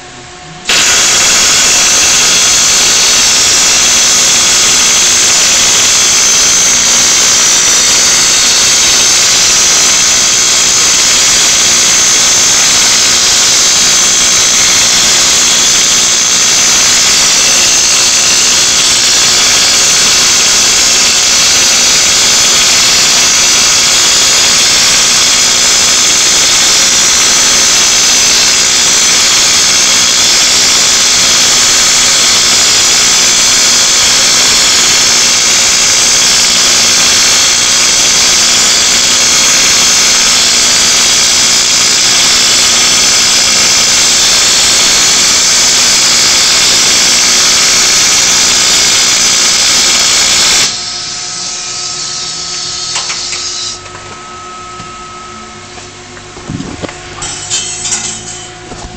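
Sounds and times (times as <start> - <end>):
welding arc hissing and buzzing: 0.6 - 53.9, 56.9 - 58.9
low hum: 53.8 - 58.9.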